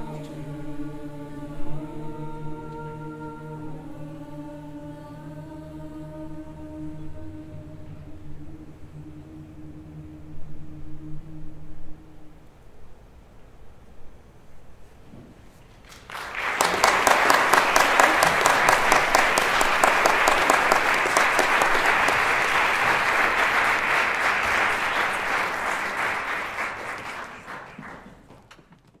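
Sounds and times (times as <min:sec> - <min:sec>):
audience applauding: 0:15.8 - 0:28.6.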